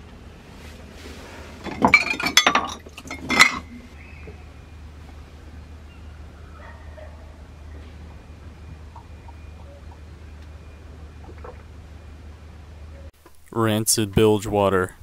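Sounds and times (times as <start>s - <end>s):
wine glass clinking: 1.7s - 3.8s.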